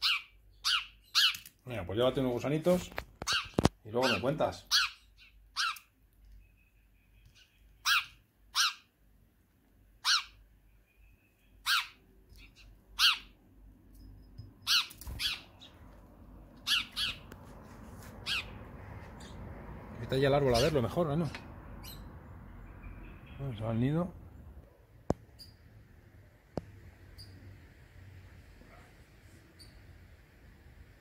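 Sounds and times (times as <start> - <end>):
sparrow chirping: 0.0 - 1.5, 3.2 - 8.9, 10.0 - 13.4, 14.0 - 15.9, 16.5 - 17.4, 18.1 - 19.6, 20.4 - 23.8, 27.0 - 27.6.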